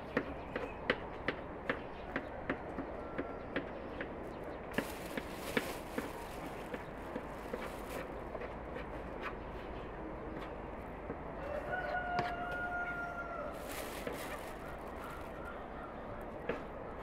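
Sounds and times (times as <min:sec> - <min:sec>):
outdoor background noise: 0:00.0 - 0:17.0
rooster crowing: 0:11.4 - 0:13.6.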